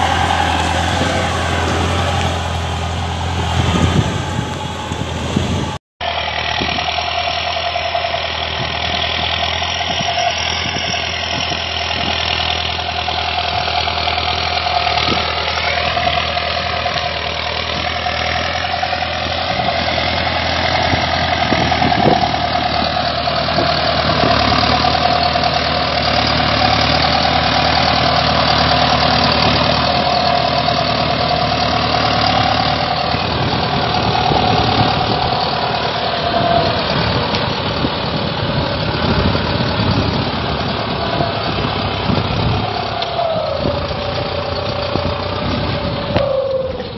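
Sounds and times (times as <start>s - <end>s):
high whine: 0.0s - 8.6s
tractor diesel engine: 0.0s - 46.9s.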